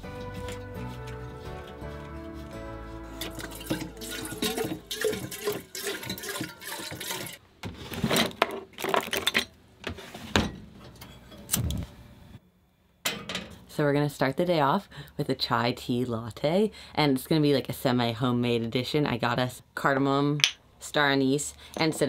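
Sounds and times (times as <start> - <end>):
tap water running into kettle: 3.2 - 7.4
drawer opening: 7.6 - 10.6.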